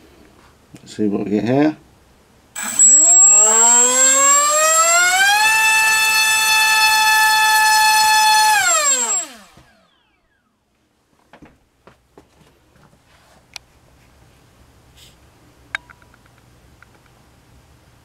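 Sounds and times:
thin high steady tone: 2.6s - 9.4s
drone motor whine: 2.6s - 10.3s.

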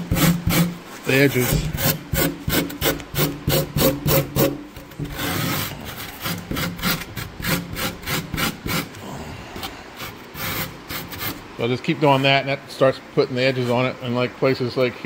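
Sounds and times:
grater rasping styrofoam: 0.0s - 9.0s, 9.9s - 11.4s.

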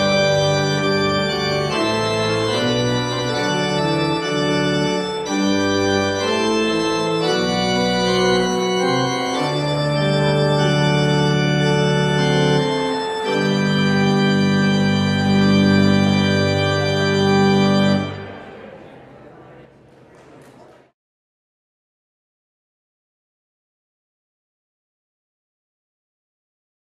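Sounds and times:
pipe organ chords: 0.0s - 19.0s.

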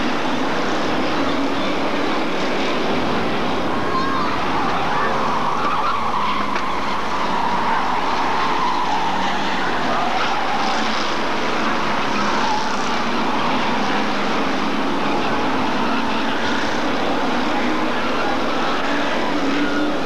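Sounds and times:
stock car engines racing: 0.0s - 20.0s.

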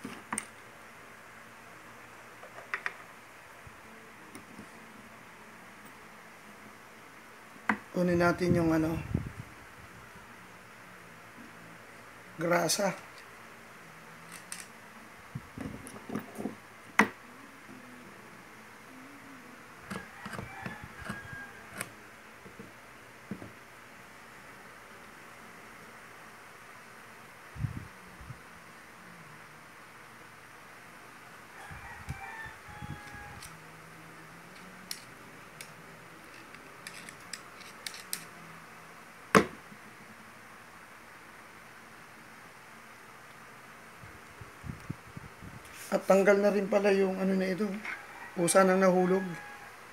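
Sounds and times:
screwdriver scraping metal: 36.3s - 38.3s.

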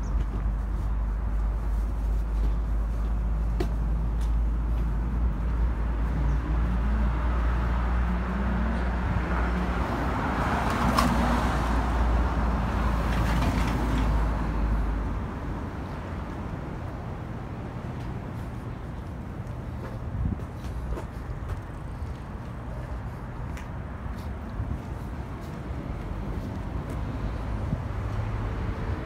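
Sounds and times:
low traffic rumble: 0.0s - 29.0s.

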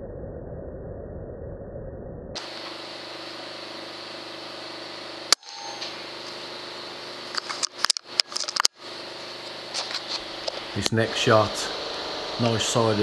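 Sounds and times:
faint hum: 0.0s - 13.0s
steady hiss: 2.4s - 13.0s
air rifle shot: 5.3s - 6.0s.

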